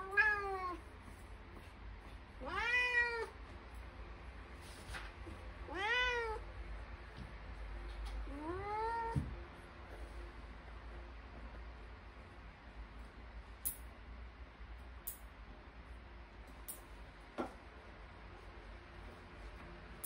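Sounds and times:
cat meowing: 0:00.0 - 0:00.8, 0:02.4 - 0:03.4, 0:05.7 - 0:06.4, 0:08.3 - 0:09.3.

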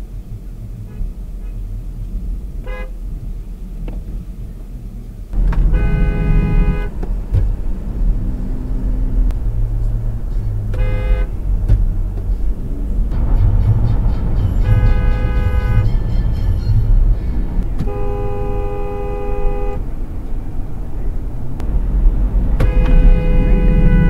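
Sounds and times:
road noise: 0:00.0 - 0:24.0
car horn honking: 0:02.6 - 0:03.0, 0:05.4 - 0:07.5, 0:08.2 - 0:12.0, 0:13.1 - 0:20.1, 0:22.5 - 0:24.0.

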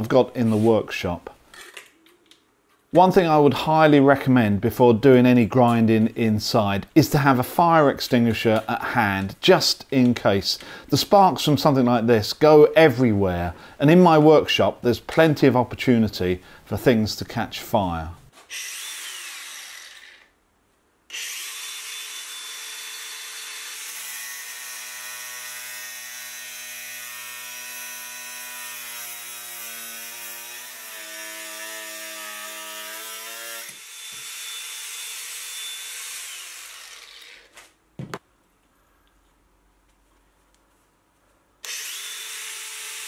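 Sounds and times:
angle grinder whining: 0:18.5 - 0:20.3, 0:21.1 - 0:25.8, 0:30.4 - 0:37.6, 0:41.6 - 0:43.0
grinder disc cutting steel: 0:41.6 - 0:43.0.

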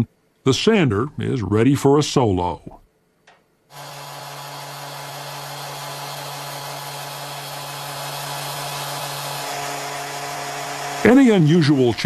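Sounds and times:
orbital sander running: 0:03.7 - 0:12.0.

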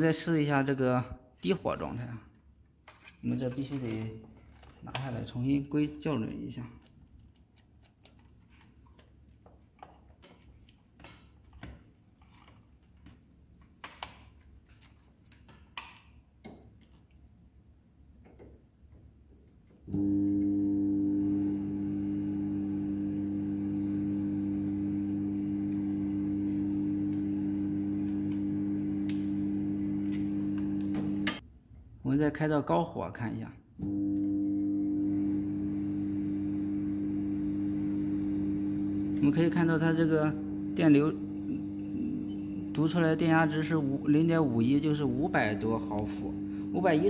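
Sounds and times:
microwave oven humming: 0:19.9 - 0:31.4, 0:33.8 - 0:47.0.

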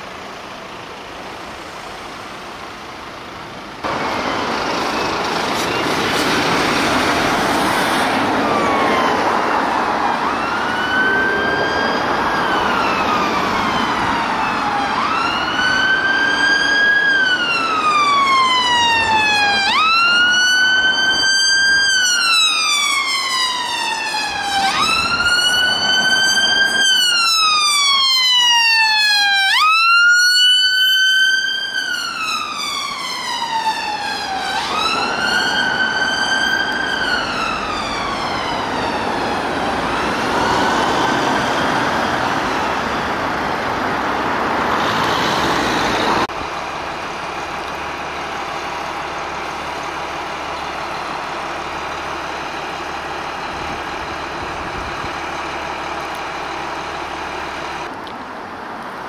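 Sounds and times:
road traffic noise: 0:00.0 - 0:59.0
ambulance siren wailing: 0:03.8 - 0:46.4.

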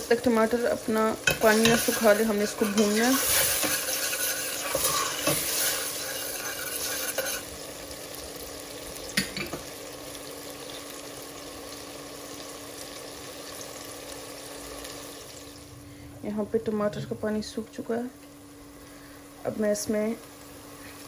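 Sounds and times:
tomato puree sizzling in oil: 0:00.0 - 0:21.0
metal spoon scraping a pot: 0:01.2 - 0:07.5.

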